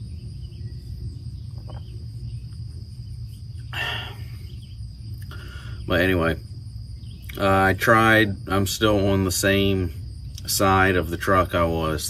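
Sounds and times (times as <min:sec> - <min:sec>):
low rumble: 0:00.0 - 0:11.4
high insect-like drone: 0:00.0 - 0:12.0
man exhaling: 0:03.7 - 0:04.5, 0:05.2 - 0:05.9.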